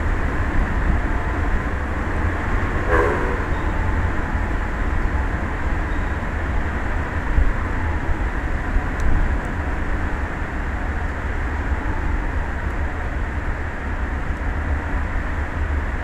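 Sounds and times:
wind buffeting microphone: 0.0 - 15.2
short pitched sound: 2.9 - 4.0.

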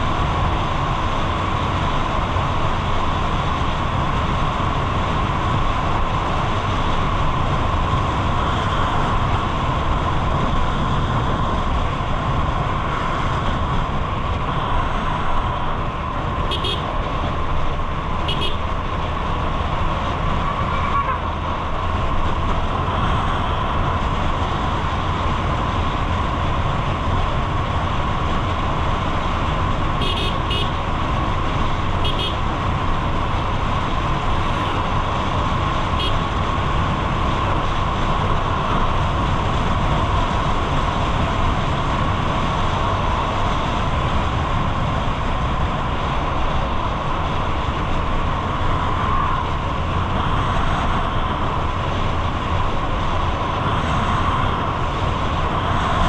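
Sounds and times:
road traffic noise: 0.0 - 56.0
vehicle horn toots: 16.5 - 16.9, 18.2 - 18.6, 30.0 - 30.8, 32.0 - 32.4, 36.0 - 36.2.

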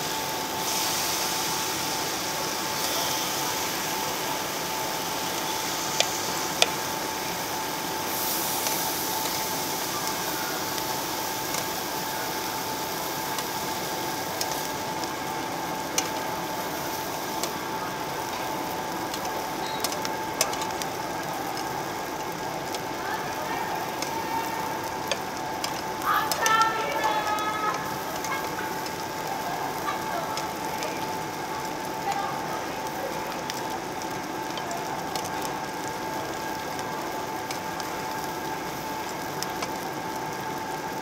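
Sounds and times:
meat sizzling on a grill: 0.0 - 41.0
metal tongs clicking on grill: 8.4 - 11.8, 14.4 - 14.8, 15.9 - 16.3, 17.1 - 17.6, 19.1 - 22.9, 23.7 - 31.2.

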